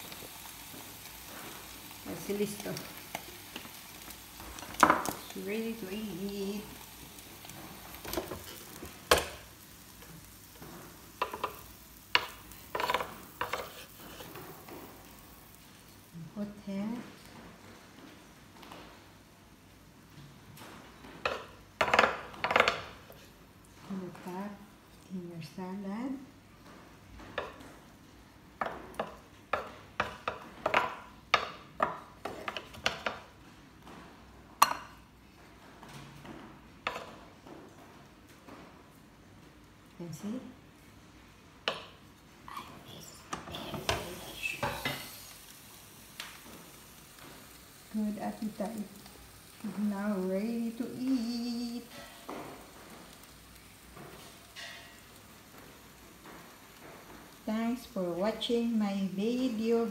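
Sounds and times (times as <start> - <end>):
faint sizzling: 0.0 - 59.9
spatula scraping on grill plate: 12.2 - 14.9, 43.6 - 45.5.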